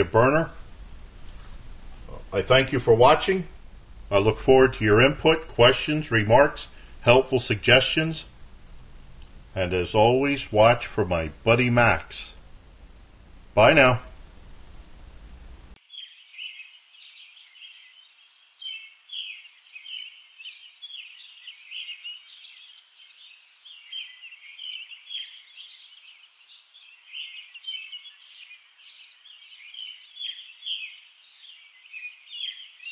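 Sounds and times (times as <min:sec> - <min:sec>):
songbirds chirping and singing: 0:09.6 - 0:12.3, 0:15.8 - 0:32.9.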